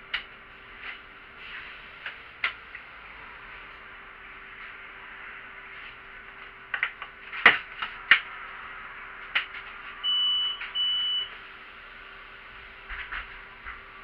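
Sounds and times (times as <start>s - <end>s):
sharp clicks and knocks: 6.3s - 8.4s
high electronic beeps: 10.0s - 11.3s.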